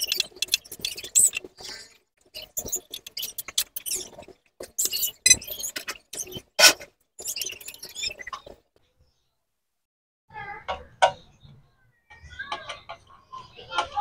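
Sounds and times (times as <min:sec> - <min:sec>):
brief squeak: 0:00.0 - 0:04.2, 0:04.8 - 0:08.5.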